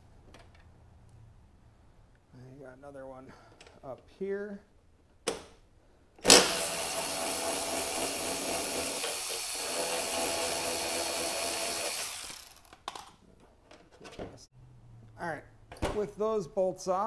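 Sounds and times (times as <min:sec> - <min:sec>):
electric ratchet running: 0:06.2 - 0:12.8.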